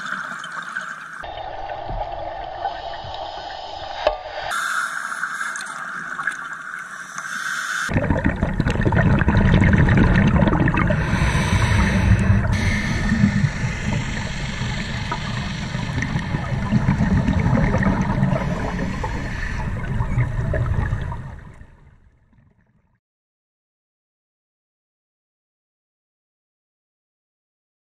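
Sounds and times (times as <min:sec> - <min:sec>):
thin hiss: 0:02.5 - 0:07.9, 0:11.0 - 0:16.8
muffled underwater bubbling: 0:07.4 - 0:22.0.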